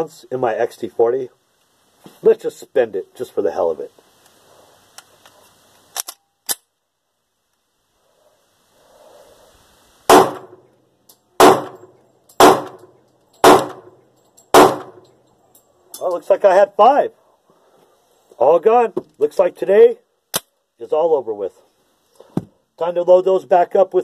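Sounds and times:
pistol handling clicks: 0:05.9 - 0:06.7
pistol gunshots with echo: 0:10.1 - 0:10.6, 0:11.4 - 0:15.0.

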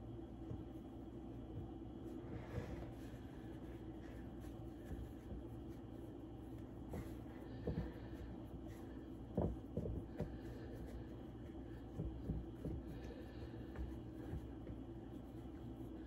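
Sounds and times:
steady low hum: 0:00.0 - 0:16.0
hands tapping pie dough: 0:06.8 - 0:14.8.

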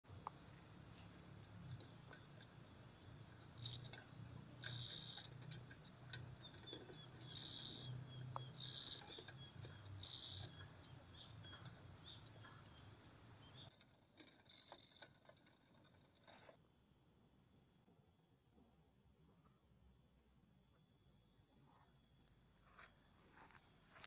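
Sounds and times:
cricket chirping: 0:03.6 - 0:03.9, 0:04.6 - 0:05.3, 0:07.2 - 0:09.2, 0:09.8 - 0:11.3, 0:14.5 - 0:15.1.

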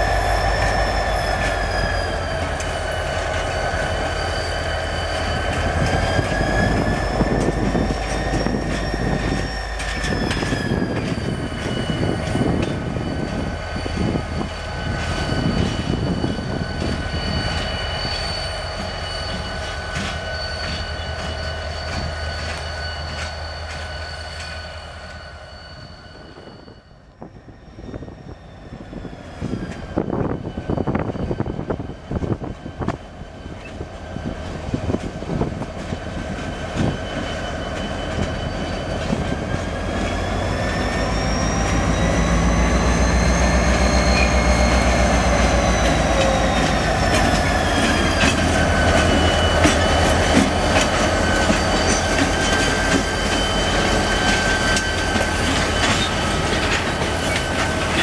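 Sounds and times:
diesel locomotive rumble and whine: 0:00.0 - 0:58.0
wheel clacks on rail joints: 0:05.1 - 0:12.9, 0:18.8 - 0:24.7, 0:44.0 - 0:58.0.

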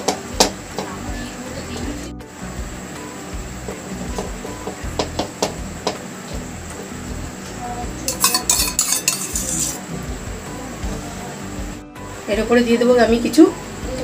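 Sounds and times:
knife scraping a frying pan: 0:08.1 - 0:09.8.

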